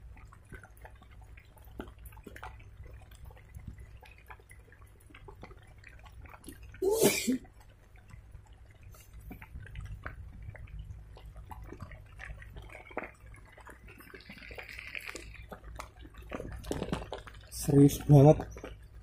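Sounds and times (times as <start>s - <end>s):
low steady rumble: 0.0s - 19.0s
raindrops dripping and tapping: 0.0s - 19.0s.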